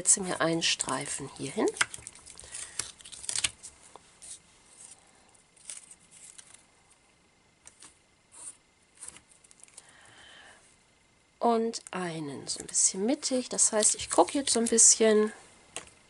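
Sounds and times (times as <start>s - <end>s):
tape rustling on paper: 0.2s - 6.6s, 7.6s - 9.8s.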